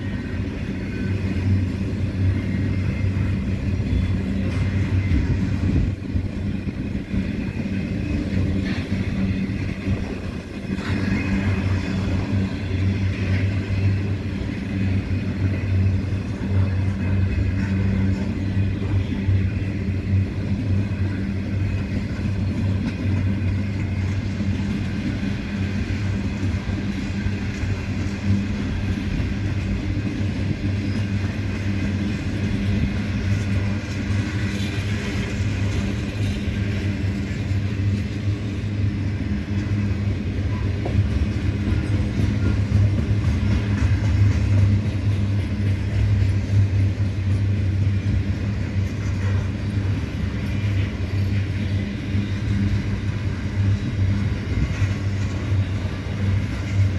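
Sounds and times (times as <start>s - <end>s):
freight train wagons rumbling on rails: 0.0s - 56.9s.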